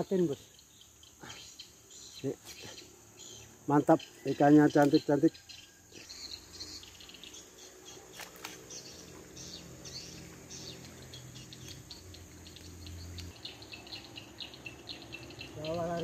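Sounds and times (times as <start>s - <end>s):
insects and birds chirping: 0.0s - 16.0s.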